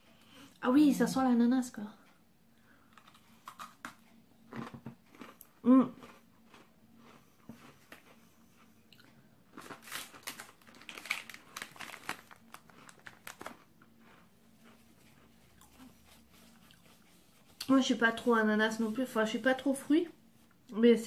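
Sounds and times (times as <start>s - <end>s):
crunchy biscuit being chewed: 2.9s - 17.1s
plastic packet crinkling: 9.5s - 14.2s.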